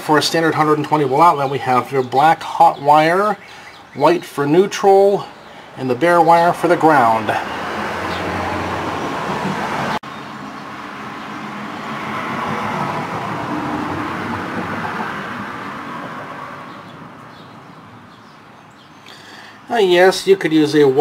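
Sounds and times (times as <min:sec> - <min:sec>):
vehicle passing: 0:05.2 - 0:19.7.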